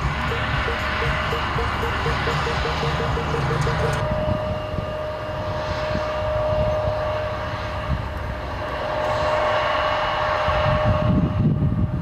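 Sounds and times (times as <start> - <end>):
jet engines whining: 0.0 - 12.0.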